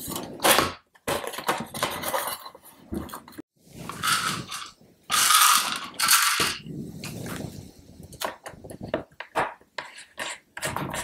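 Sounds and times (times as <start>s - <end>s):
metal plate and plastic case scraping: 0.0s - 6.6s.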